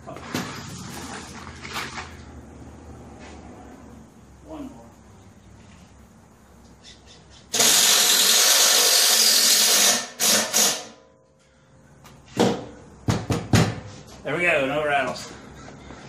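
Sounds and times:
sharp knocks: 0:12.4 - 0:13.9.

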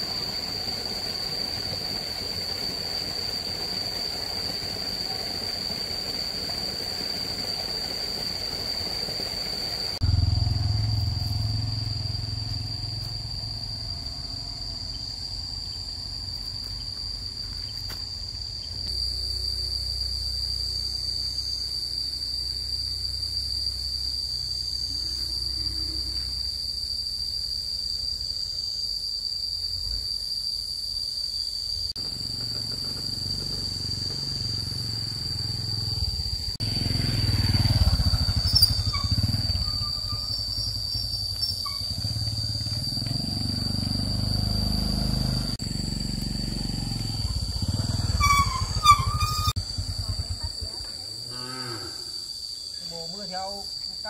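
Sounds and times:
low rumble: 0:10.0 - 0:14.9
insects shrilling: 0:28.3 - 0:54.0.

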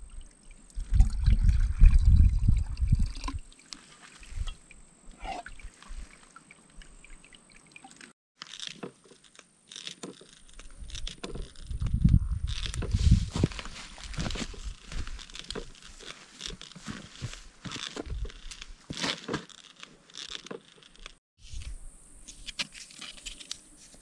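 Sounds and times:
footsteps crunching through vegetation: 0:12.5 - 0:20.5.

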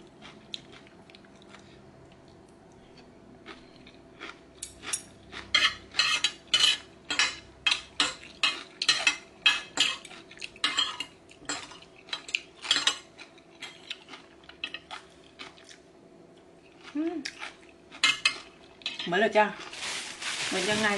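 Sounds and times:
cutlery scraping on plate: 0:04.7 - 0:13.0.

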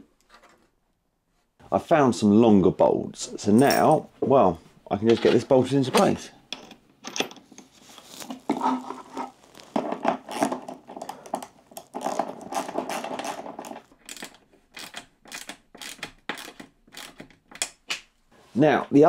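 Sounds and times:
metal tools clinking and scraping: 0:03.4 - 0:04.1, 0:05.0 - 0:11.3
ratchet clicks: 0:14.1 - 0:17.8.

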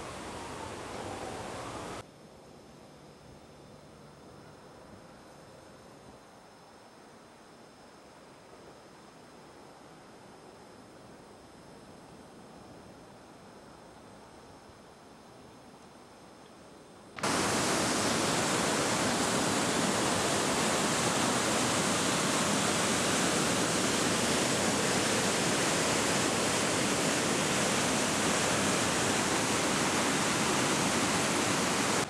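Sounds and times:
faint hiss: 0:00.0 - 0:32.0
whitewater rushing over falls: 0:17.2 - 0:32.0.

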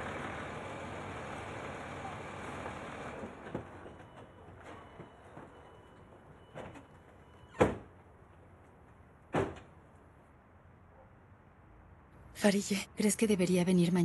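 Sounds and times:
car doors slamming shut: 0:09.3 - 0:09.7.

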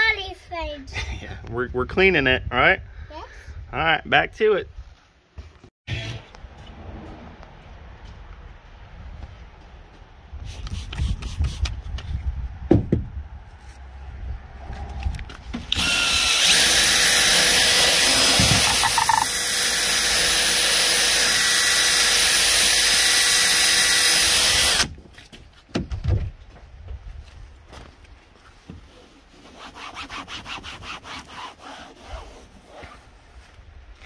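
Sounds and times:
cordless drill whirring: 0:15.7 - 0:24.9.

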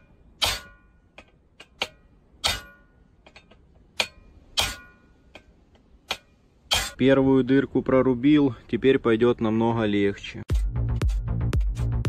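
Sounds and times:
hammer striking chisel on metal: 0:00.0 - 0:07.0.

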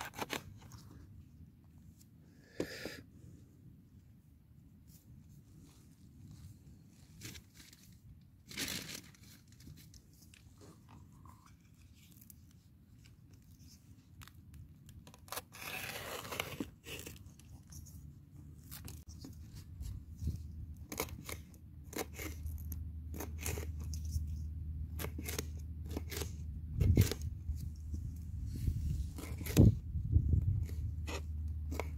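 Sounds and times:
knife tearing scrape: 0:15.1 - 0:17.8, 0:20.9 - 0:24.3, 0:24.9 - 0:27.3, 0:28.7 - 0:29.8.

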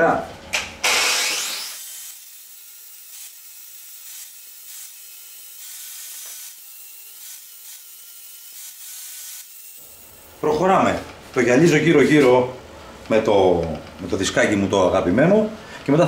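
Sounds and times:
angle grinder on metal: 0:00.8 - 0:10.2.

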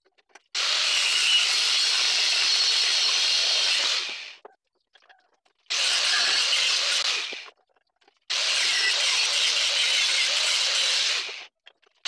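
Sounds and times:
angle grinder cutting steel: 0:00.6 - 0:04.4, 0:05.7 - 0:07.5, 0:08.3 - 0:11.5.

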